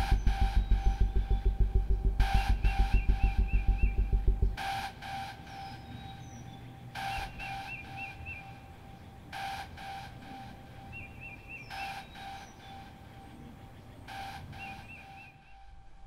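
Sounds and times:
music beat: 0.0 - 5.7
faint bird chirps: 0.0 - 15.8.

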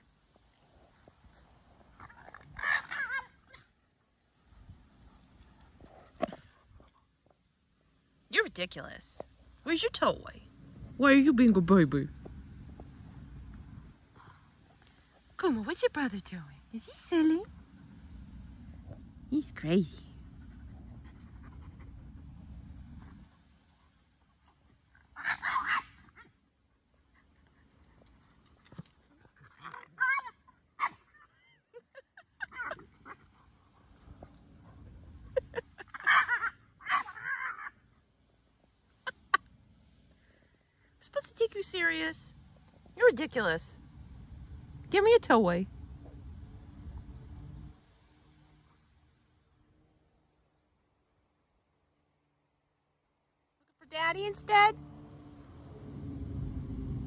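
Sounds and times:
dog yipping: 2.6 - 3.6, 25.2 - 26.3, 29.6 - 31.6, 35.8 - 37.8
dog whining: 29.4 - 31.8, 35.3 - 37.8.

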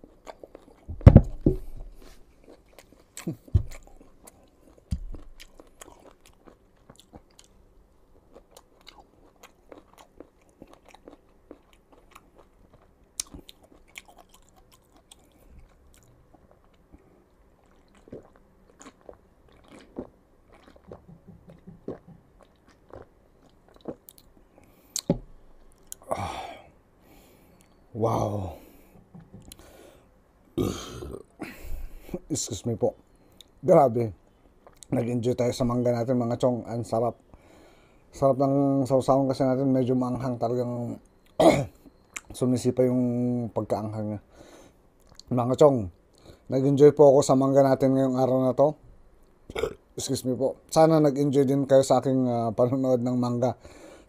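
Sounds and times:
chewing clicks: 2.4 - 7.6, 8.3 - 16.8, 17.6 - 24.3.

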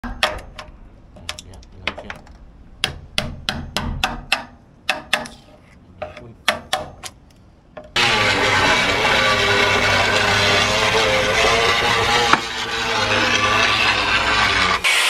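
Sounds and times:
hammer tapping a chisel on metal: 2.8 - 5.4, 6.0 - 7.2.

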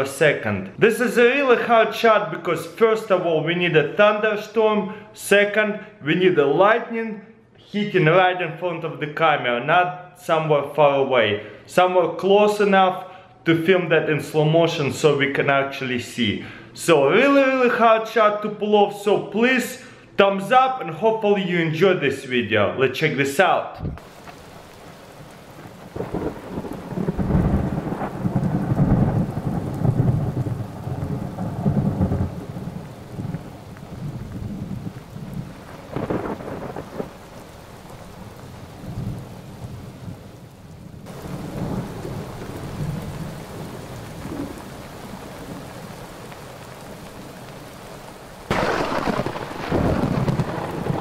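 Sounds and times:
thunder rumbling: 23.8 - 47.7, 48.5 - 51.0
steady rain: 24.0 - 51.0.

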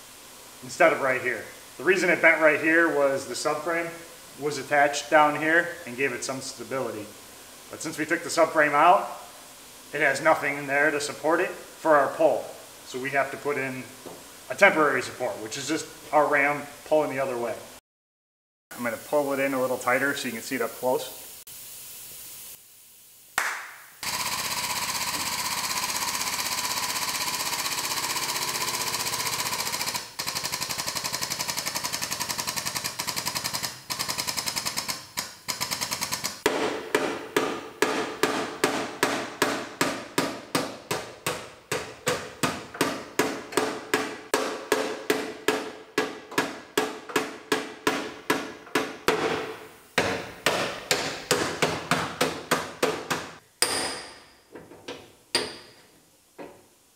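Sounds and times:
air-driven hydraulic pump chattering: 24.0 - 36.5
hammer clanging on steel: 53.6 - 54.4.

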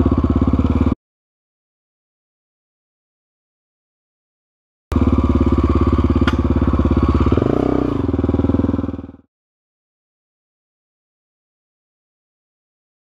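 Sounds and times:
dirt bike engine running: 0.0 - 1.0, 4.9 - 9.3
sharp knock: 6.2 - 6.5.

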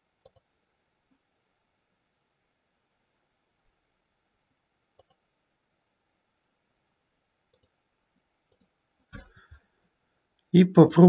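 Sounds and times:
computer mouse clicks: 0.2 - 0.5, 5.0 - 5.2, 7.5 - 7.8, 8.5 - 9.5.

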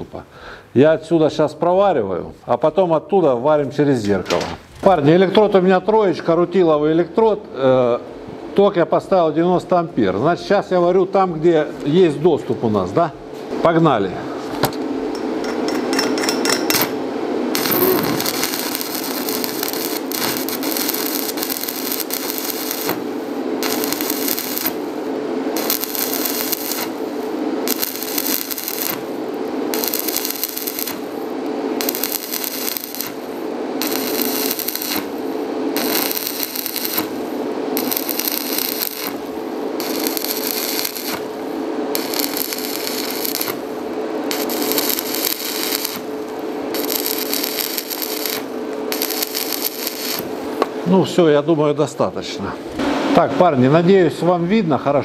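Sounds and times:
welding arc crackling: 15.1 - 50.9.

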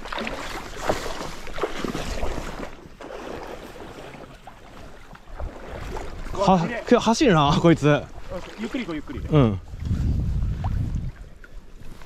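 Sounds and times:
waves lapping on pebbles: 0.0 - 9.2
wind buffeting microphone: 5.3 - 12.0.

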